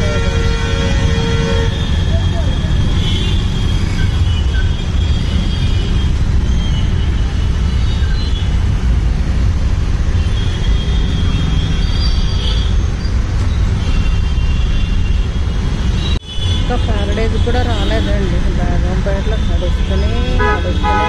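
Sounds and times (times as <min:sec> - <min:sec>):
auto-rickshaw engine rumbling: 0:00.0 - 0:21.0
road traffic: 0:00.0 - 0:21.0.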